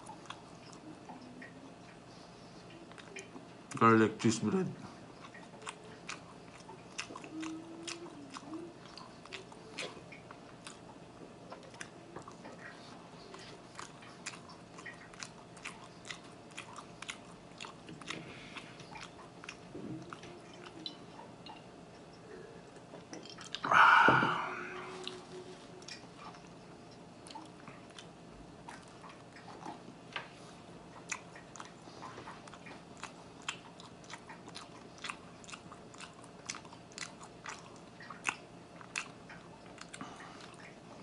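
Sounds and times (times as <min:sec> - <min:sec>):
close-miked chewing: 0:00.0 - 0:41.0
breathy noise: 0:23.6 - 0:25.5.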